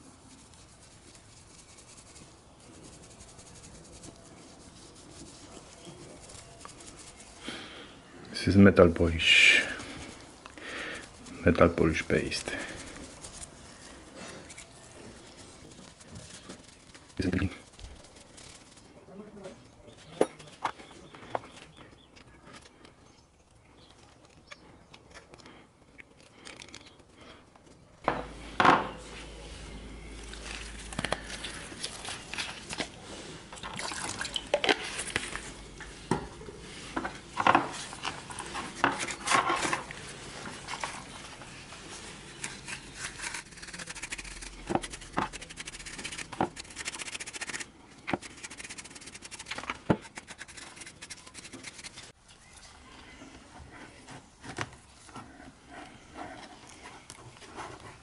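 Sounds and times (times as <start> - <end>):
wet rubbing and scrubbing: 0.0 - 7.5, 9.2 - 19.0, 28.3 - 52.2.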